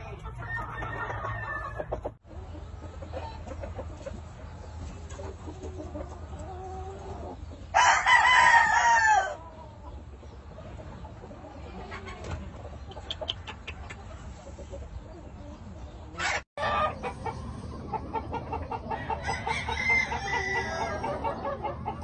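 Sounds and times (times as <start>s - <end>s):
rooster crowing: 0.4s - 1.9s, 7.8s - 9.4s, 18.9s - 21.2s
soft clucking: 9.5s - 19.3s.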